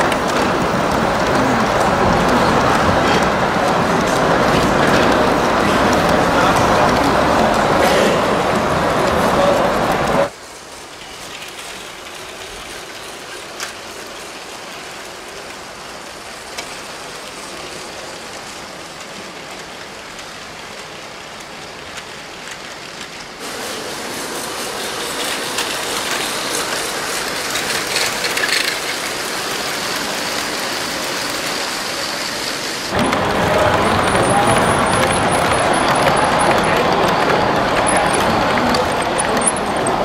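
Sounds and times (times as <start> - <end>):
toy train motors whirring rattle: 10.3 - 32.9.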